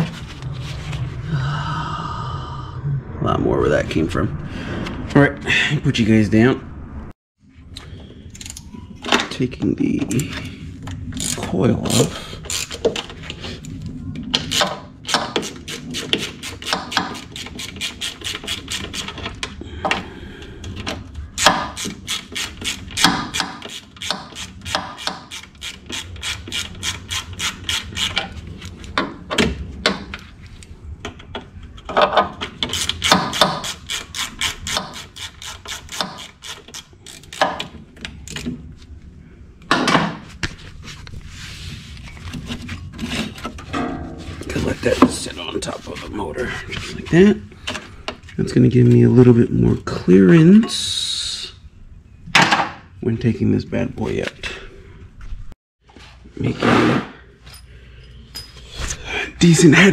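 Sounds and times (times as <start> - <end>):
hand ratchet clicking: 14.5 - 19.2, 21.4 - 28.2, 32.6 - 37.7
sharp metal knocks: 43.6 - 45.3.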